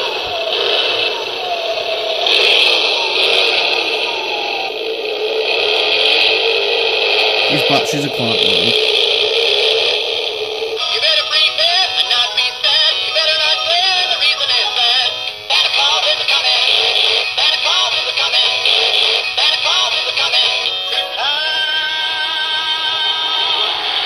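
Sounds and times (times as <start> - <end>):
synthesised voice singing: 7.5 - 8.8, 10.9 - 14.9.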